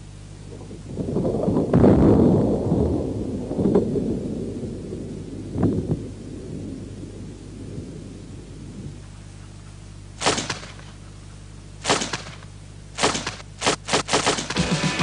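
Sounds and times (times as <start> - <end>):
revolver gunshots: 10.2 - 11.0, 11.8 - 14.8.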